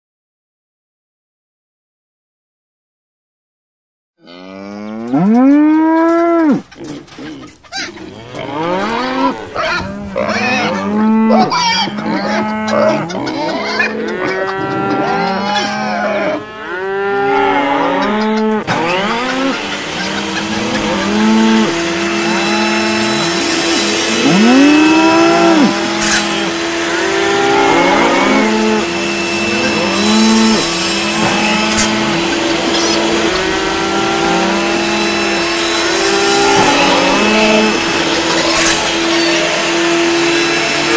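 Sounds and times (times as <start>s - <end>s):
cattle mooing: 4.2s - 40.9s
steady hum: 18.5s - 40.9s.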